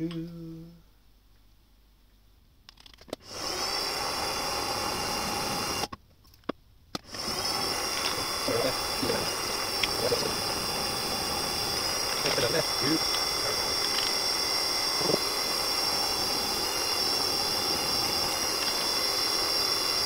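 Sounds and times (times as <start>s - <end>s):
drill spindle motor whining: 3.2s - 6.0s, 7.0s - 20.0s
drilling into workpiece: 3.2s - 6.0s, 7.0s - 20.0s.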